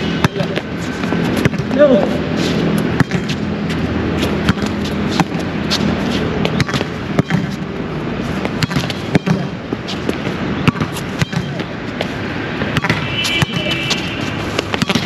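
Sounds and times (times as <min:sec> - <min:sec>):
volleyball being struck: 0:12.7 - 0:13.8, 0:14.7 - 0:15.0.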